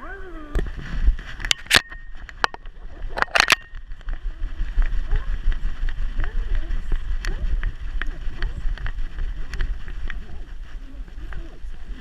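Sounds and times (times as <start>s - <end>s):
camera rubbing rumble: 0.5s - 12.0s
camera knocking: 1.4s - 10.3s.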